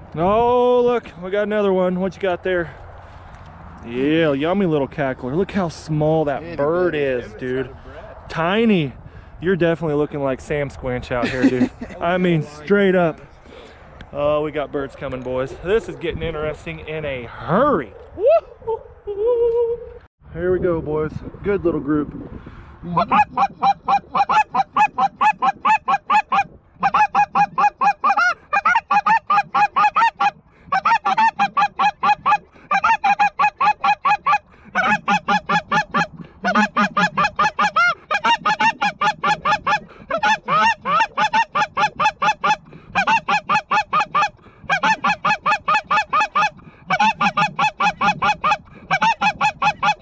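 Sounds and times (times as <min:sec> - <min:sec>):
goose honking: 0:22.9 - 0:50.0.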